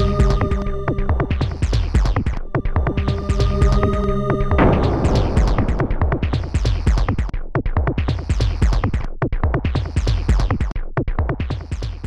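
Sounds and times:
electronic music with deep bass: 0.0s - 9.0s.

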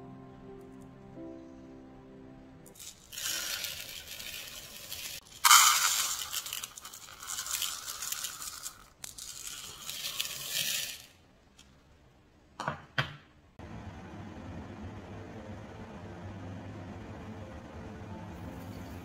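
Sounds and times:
dry grains pouring into bowl: 2.7s - 11.2s.

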